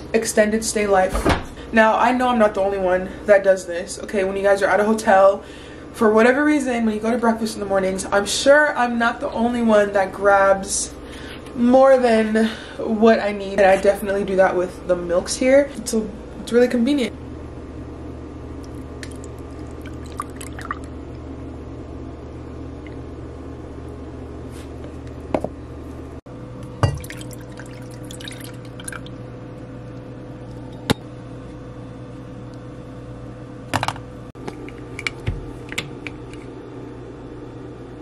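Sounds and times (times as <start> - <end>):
steady low hum: 0.0 - 38.0
milk pouring into a mug: 18.6 - 20.9, 27.0 - 29.1.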